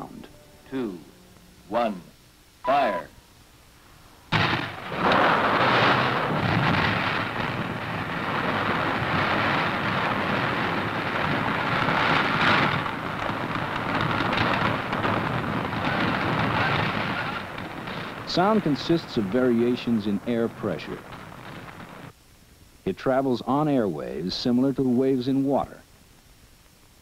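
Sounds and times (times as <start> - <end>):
demolition blast bang: 4.3 - 22.1
rumble of falling water and rock: 4.3 - 22.2.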